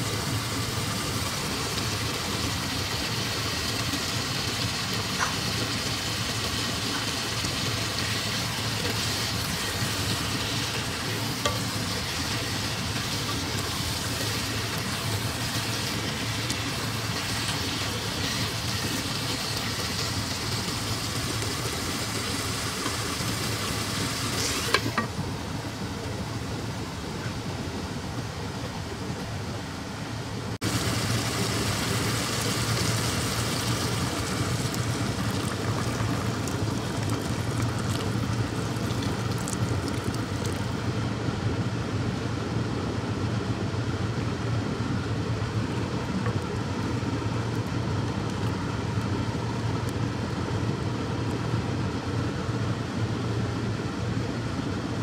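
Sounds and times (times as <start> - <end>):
food sizzling in a pot: 0.0 - 25.1, 30.6 - 40.4
broth boiling: 0.0 - 55.0.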